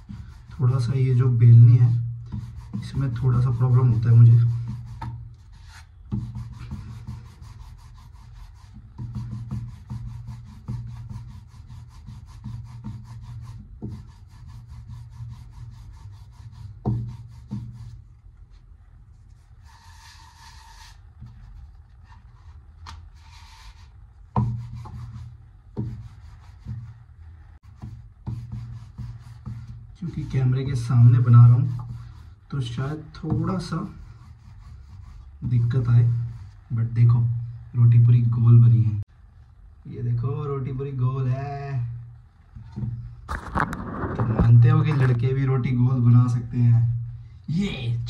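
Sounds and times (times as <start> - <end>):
rolling pin rubbing on dough: 0.0 - 36.8.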